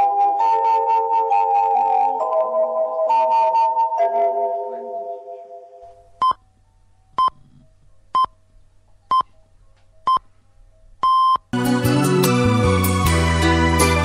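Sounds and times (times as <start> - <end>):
music: 0.0 - 6.0, 11.6 - 14.0
electronic countdown beeps: 11.0 - 11.4.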